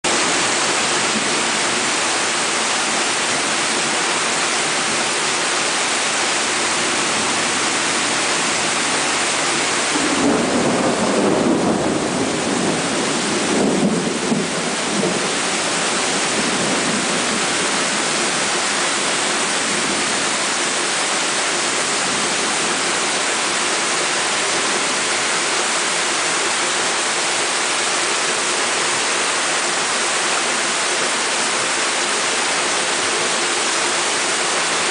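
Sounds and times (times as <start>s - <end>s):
heavy rain falling: 0.0s - 34.9s
thunder rumbling: 6.9s - 23.5s.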